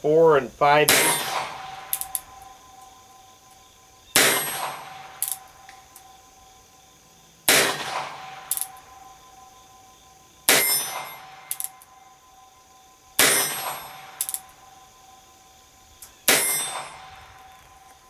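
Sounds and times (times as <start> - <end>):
revolver shots with metallic ring: 0.9 - 2.6, 4.1 - 5.6, 7.5 - 9.0, 10.5 - 11.8, 13.2 - 14.5, 16.3 - 17.2.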